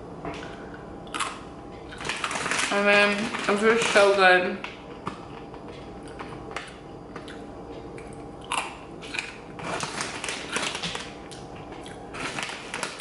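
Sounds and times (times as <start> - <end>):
pretzel crunching when chewed: 0.4 - 4.0, 4.9 - 13.0.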